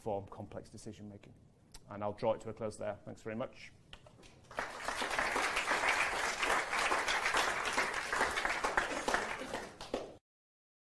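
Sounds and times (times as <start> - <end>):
audience applauding: 4.5 - 10.2.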